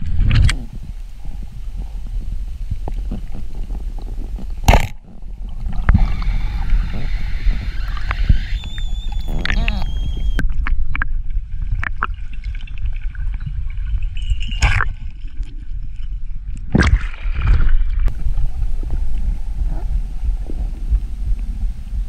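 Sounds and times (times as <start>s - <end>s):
underwater water rumble: 0.0s - 22.0s
bubbling bursts: 3.1s - 10.4s.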